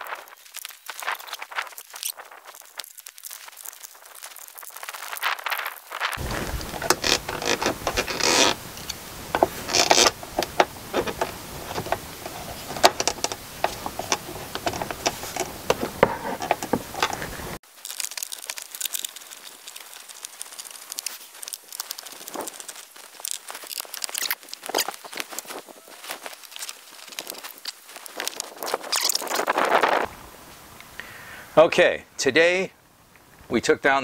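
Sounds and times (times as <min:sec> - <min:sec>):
plastic trim creaking: 0:06.2 - 0:17.6.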